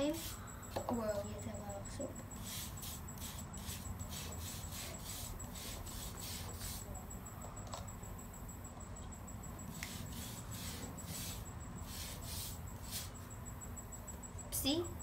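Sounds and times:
toothbrush scrubbing griptape: 0:02.4 - 0:06.9, 0:09.7 - 0:13.2.

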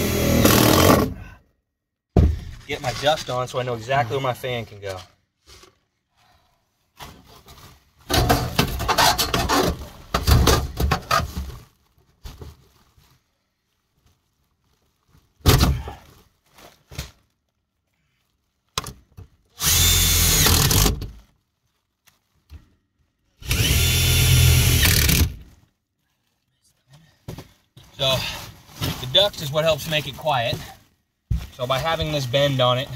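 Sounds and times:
foil duct crinkling: 0:11.4 - 0:15.4, 0:21.1 - 0:23.4
cordless drill running: 0:19.6 - 0:20.9, 0:23.4 - 0:25.4.

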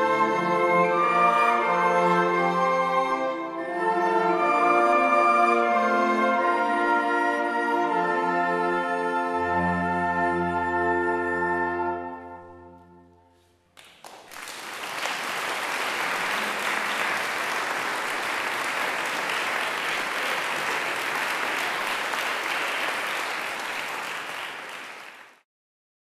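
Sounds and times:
audience applause: 0:13.8 - 0:25.4.

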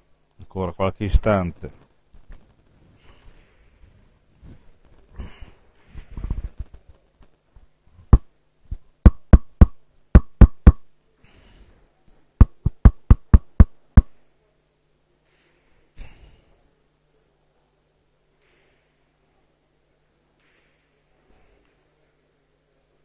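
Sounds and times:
sharp knocks: 0:09.1 - 0:10.8, 0:12.4 - 0:14.1.

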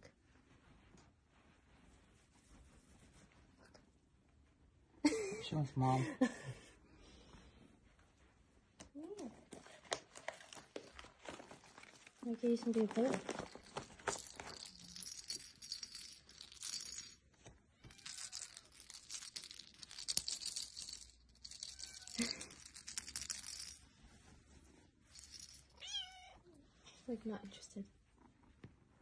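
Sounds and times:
cats rustling on blanket: 0:00.0 - 0:05.0, 0:09.4 - 0:18.4, 0:20.0 - 0:27.6
kitten meowing: 0:25.8 - 0:26.4.

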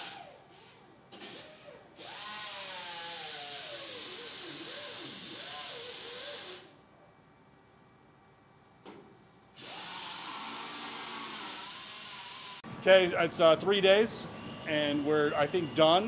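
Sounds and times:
compressed air hissing: 0:03.6 - 0:06.7
voices talking: 0:12.8 - 0:16.0.

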